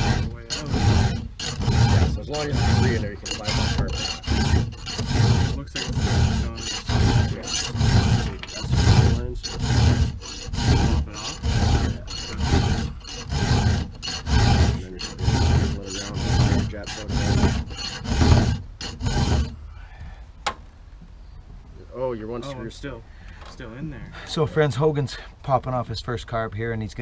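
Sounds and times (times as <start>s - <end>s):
file rasping on chainsaw chain: 0.0s - 19.6s.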